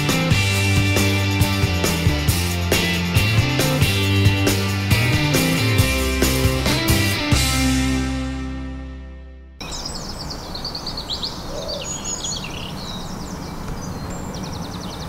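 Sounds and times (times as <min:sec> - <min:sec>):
guitar chord: 0:01.5 - 0:09.6
small birds chirping: 0:09.6 - 0:15.0.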